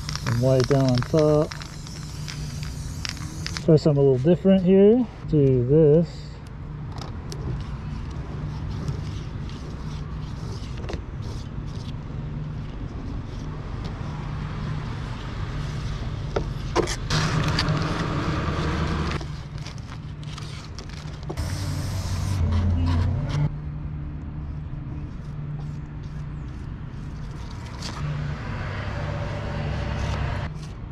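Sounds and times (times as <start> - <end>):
spray paint can hissing: 0.0 - 3.7
steady low hum: 19.2 - 30.5.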